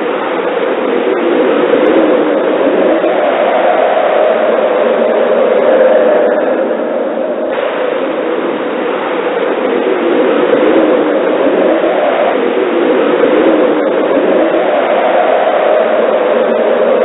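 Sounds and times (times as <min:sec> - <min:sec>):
blizzard wind blowing: 0:00.0 - 0:17.0.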